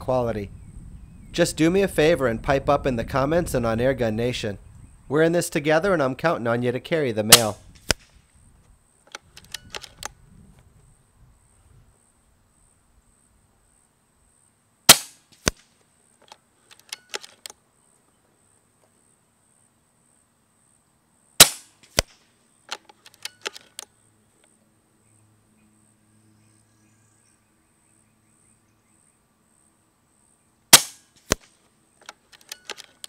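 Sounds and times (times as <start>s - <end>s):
air rifle shots: 7.3s - 8.2s, 14.9s - 15.6s, 21.4s - 22.2s, 30.7s - 31.5s.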